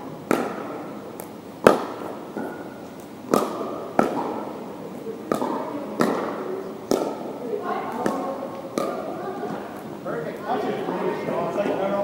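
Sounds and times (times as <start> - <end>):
paddles hitting plastic ball: 0.2 - 4.5, 5.3 - 9.1.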